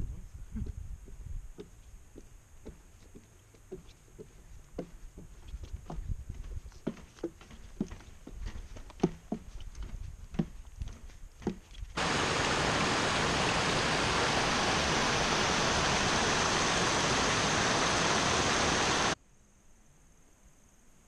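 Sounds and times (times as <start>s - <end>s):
creek water rushing over rocks: 12.0s - 19.2s.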